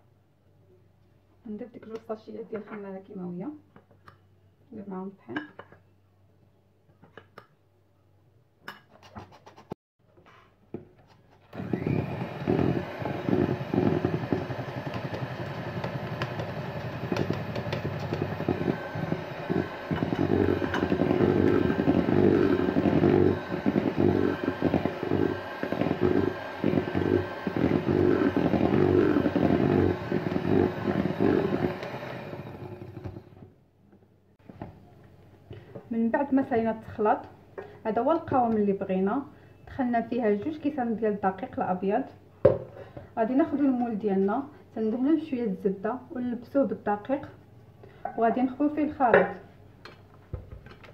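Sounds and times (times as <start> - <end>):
electric hand mixer beating batter: 11.5 - 33.4.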